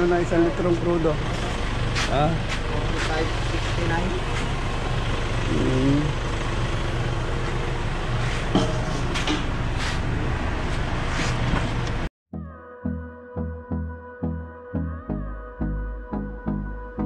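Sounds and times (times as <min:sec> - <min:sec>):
low motor hum: 0:00.0 - 0:12.1.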